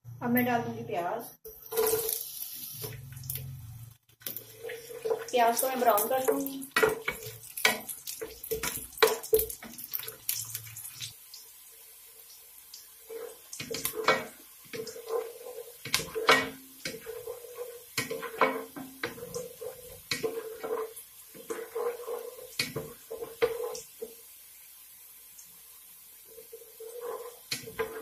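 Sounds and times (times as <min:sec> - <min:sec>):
onions sizzling in oil: 0:01.5 - 0:28.0
wooden spatula scraping a pot: 0:04.3 - 0:10.8, 0:13.0 - 0:24.2, 0:26.2 - 0:28.0.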